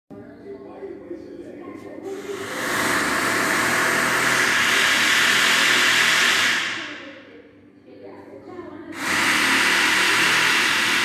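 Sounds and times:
skylight actuator whirring: 0:02.2 - 0:07.1, 0:09.0 - 0:11.0.

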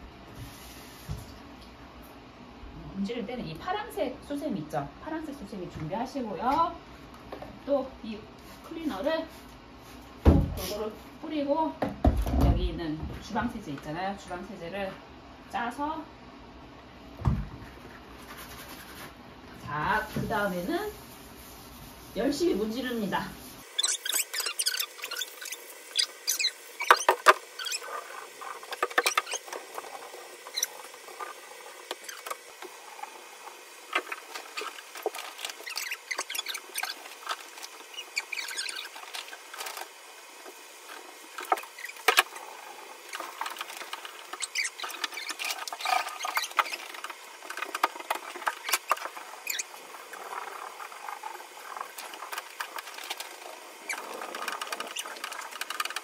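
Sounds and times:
sponge scrubbing wet bathtub: 0:17.6 - 0:56.0.

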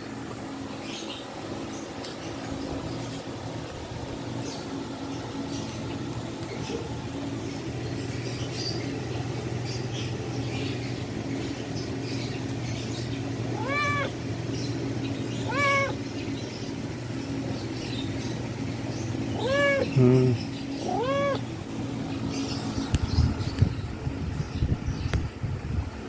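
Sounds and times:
steady low hum: 0:00.0 - 0:26.0
cat meowing: 0:13.6 - 0:14.2, 0:15.3 - 0:16.0, 0:19.3 - 0:20.0, 0:20.8 - 0:21.5.

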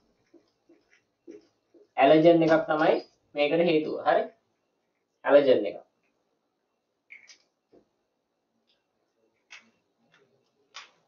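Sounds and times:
marker squeak: 0:07.1 - 0:07.6.

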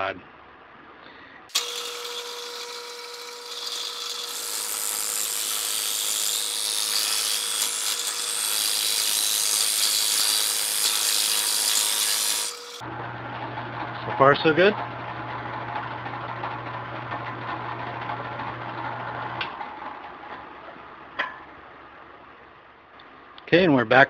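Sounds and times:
drill press motor whine: 0:01.5 - 0:07.1
drill bit cutting wood: 0:01.5 - 0:12.8.

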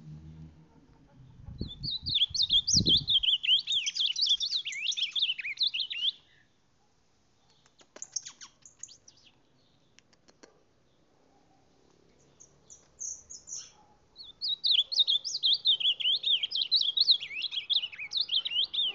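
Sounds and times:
bird warbling song: 0:01.0 - 0:06.5, 0:07.4 - 0:10.0, 0:12.2 - 0:18.9
faint bird chirps: 0:01.0 - 0:06.6, 0:07.4 - 0:18.9.

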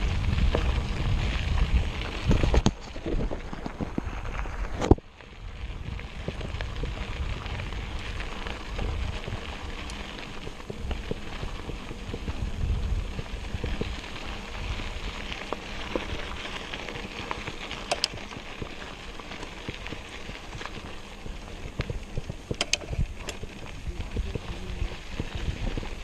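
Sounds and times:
bicycle tyres rolling: 0:00.0 - 0:26.0
wind buffeting microphone: 0:00.0 - 0:26.0
sharp clicks: 0:17.8 - 0:18.2, 0:22.5 - 0:23.4.

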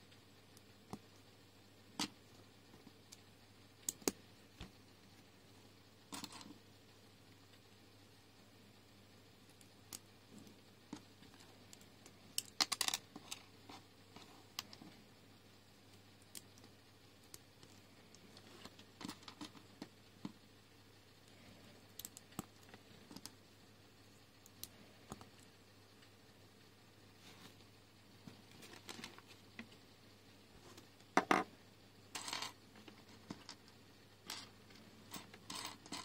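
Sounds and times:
plastic bricks clicking together: 0:12.4 - 0:13.4.

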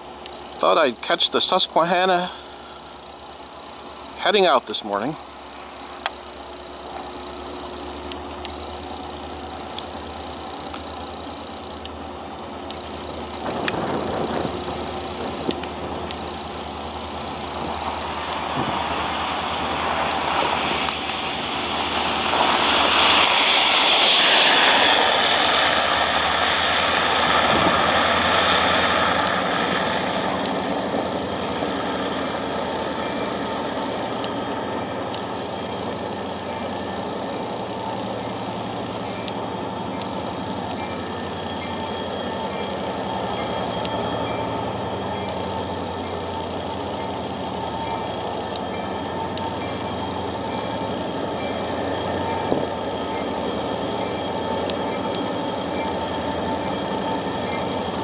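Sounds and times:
locomotive engine drone: 0:00.0 - 0:58.0
car tyres swishing on slush: 0:17.7 - 0:30.4.

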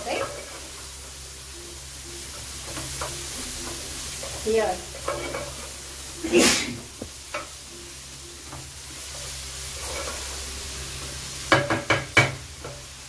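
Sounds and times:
onions sizzling in oil: 0:00.0 - 0:13.0
spatula knocking against pot: 0:11.5 - 0:12.4.

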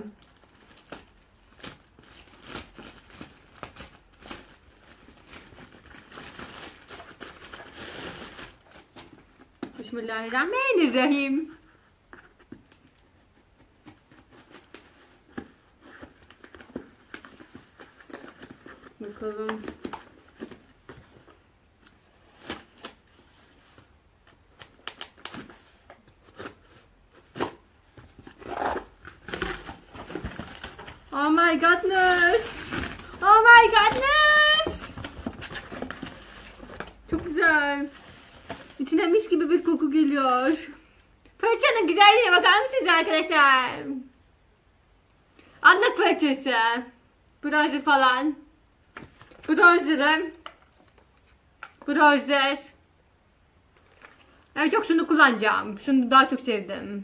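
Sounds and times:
plastic mailer bag crinkling: 0:00.2 - 0:09.3, 0:24.6 - 0:40.7
tape and cardboard rustling: 0:00.2 - 0:40.8, 0:53.7 - 0:54.4.

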